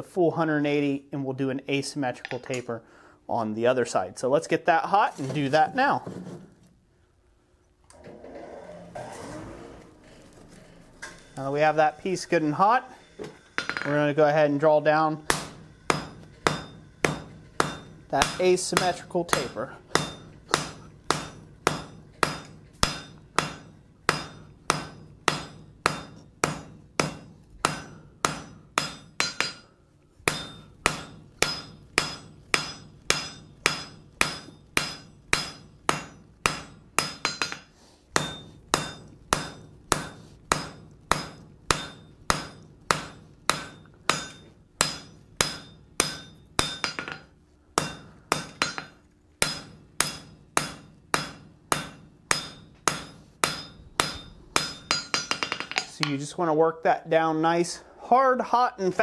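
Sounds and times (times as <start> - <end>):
hammer striking metal on anvil: 11.0 - 14.0, 15.2 - 56.2.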